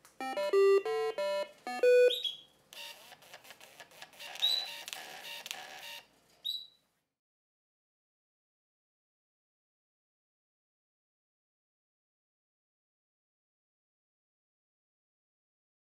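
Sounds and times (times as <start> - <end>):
doorbell electronic beeping tune: 0.2 - 2.4.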